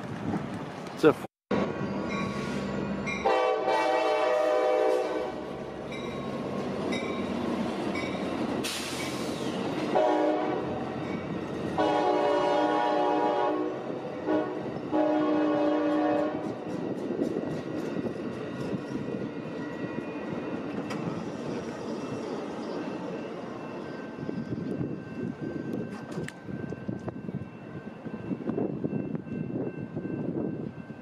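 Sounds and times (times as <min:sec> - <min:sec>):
passing train rumble: 0:00.0 - 0:31.0
train horn blasts: 0:03.2 - 0:05.6, 0:09.9 - 0:10.9, 0:11.7 - 0:16.6.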